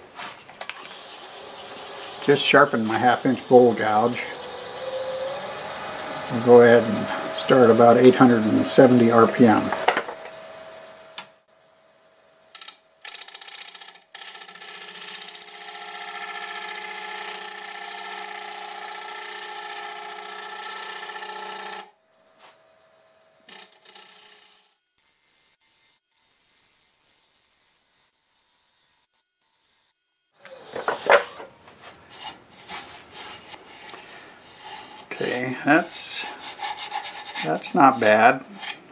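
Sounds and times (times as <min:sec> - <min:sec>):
lathe hum: 0:00.7 - 0:11.3, 0:13.2 - 0:27.5, 0:30.4 - 0:38.9
gouge shaving wood on lathe: 0:05.9 - 0:09.8, 0:13.3 - 0:21.9, 0:32.0 - 0:38.9
scraping and rubbing on wood: 0:30.5 - 0:38.9.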